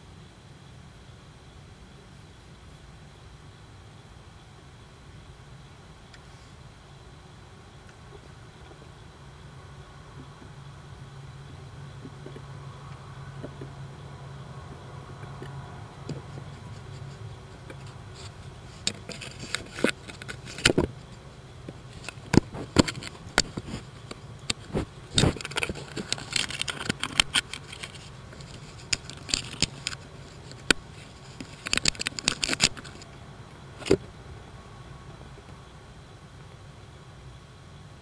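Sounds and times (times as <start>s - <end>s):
raccoon knocking and scraping camera: 15.2s - 33.1s.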